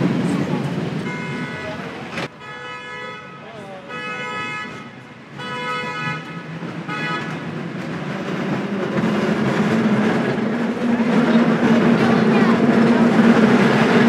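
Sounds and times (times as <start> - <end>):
cable car rumbling on track: 0.0 - 2.3, 3.7 - 14.0
vehicle horn honking: 1.0 - 7.4.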